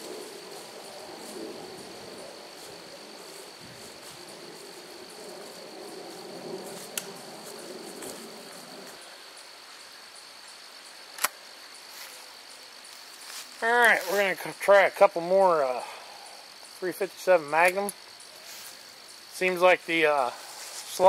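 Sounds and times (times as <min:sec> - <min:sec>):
insects droning: 0:00.0 - 0:21.0
sharp clicks: 0:11.2 - 0:11.4.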